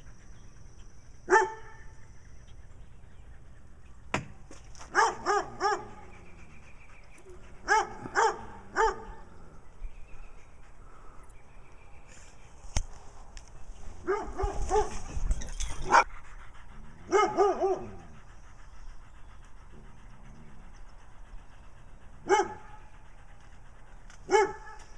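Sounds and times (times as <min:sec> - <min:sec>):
dog barking: 0:01.3 - 0:01.8, 0:04.9 - 0:06.0, 0:07.7 - 0:09.2, 0:14.0 - 0:15.0, 0:17.1 - 0:18.0, 0:22.2 - 0:22.8, 0:24.3 - 0:24.8.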